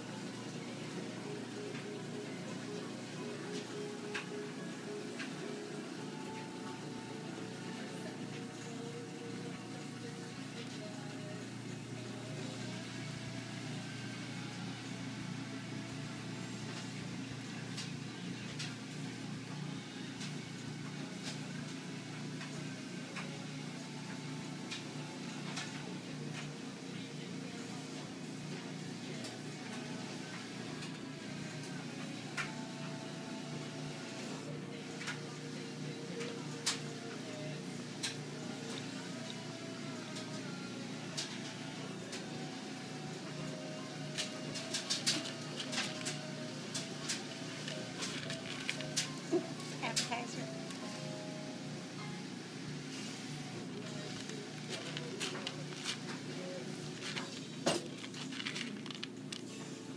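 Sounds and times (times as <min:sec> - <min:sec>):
cat crunching dry kibble: 0:47.6 - 0:49.1, 0:53.9 - 0:56.2, 0:56.8 - 0:59.6.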